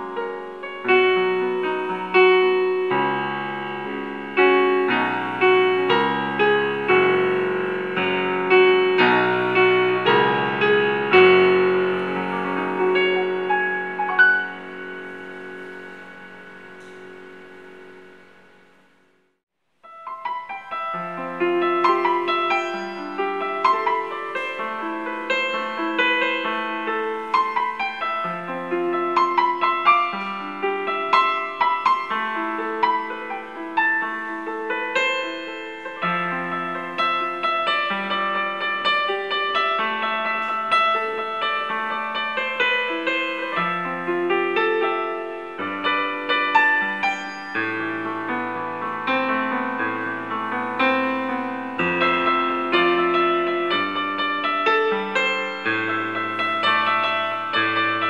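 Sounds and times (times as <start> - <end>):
digital piano chords: 0.0 - 58.0.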